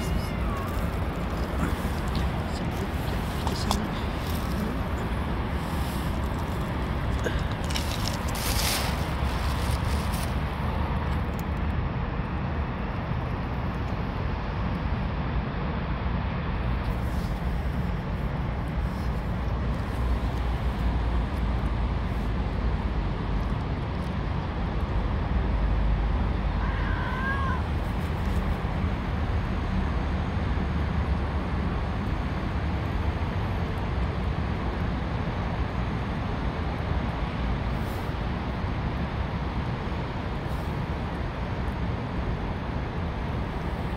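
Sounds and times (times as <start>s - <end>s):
city traffic rumble: 0.0s - 43.9s
cat meow: 26.5s - 27.7s.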